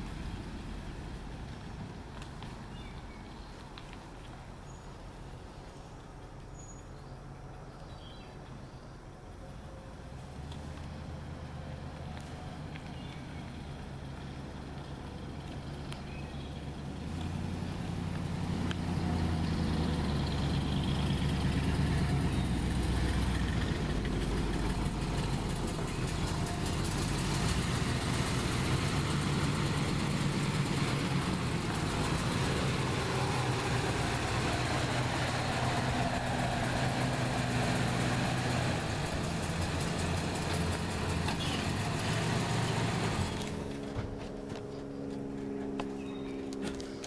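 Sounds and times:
pickup engine running: 10.0s - 47.0s.

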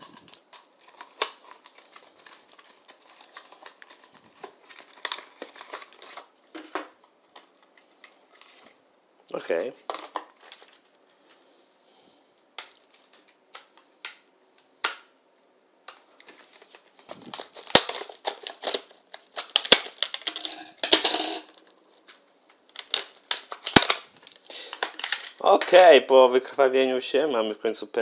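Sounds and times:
plastic pack clicking: 0.2s - 7.5s, 12.6s - 15.1s, 17.2s - 25.9s.

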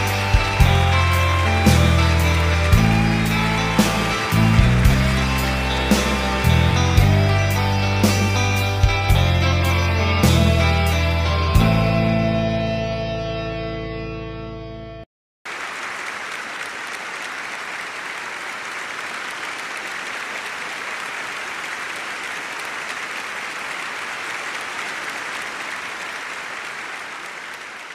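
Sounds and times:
audience applauding: 0.0s - 11.7s, 15.5s - 27.9s.

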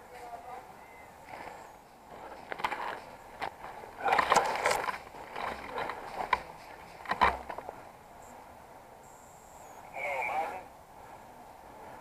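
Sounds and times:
brambles rustling against clothing: 1.1s - 7.9s
twigs snapping: 1.3s - 7.7s.

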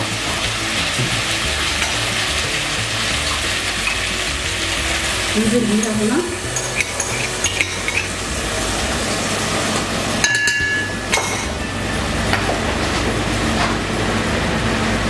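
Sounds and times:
liquid pouring: 0.0s - 11.6s
spoon clinking against a cup: 5.8s - 8.2s, 10.2s - 11.5s.

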